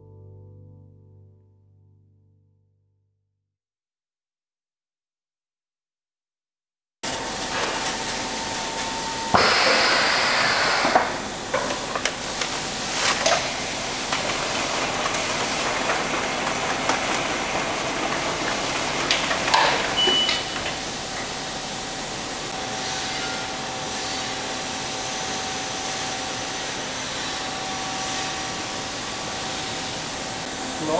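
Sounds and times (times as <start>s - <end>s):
machinery humming: 7.0s - 30.9s
air hiss: 9.3s - 11.3s.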